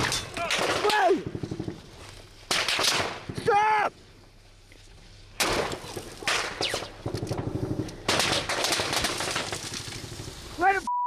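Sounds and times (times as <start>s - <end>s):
gunshots: 2.5s - 3.4s, 5.4s - 7.4s, 8.0s - 9.8s.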